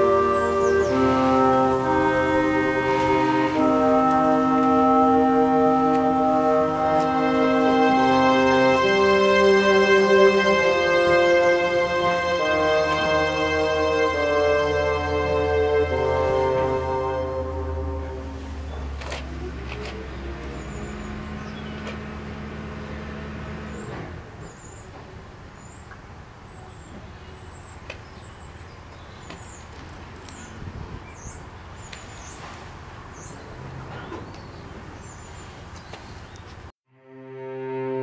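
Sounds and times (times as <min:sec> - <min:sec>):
steady background hiss: 0:00.0 - 0:21.4.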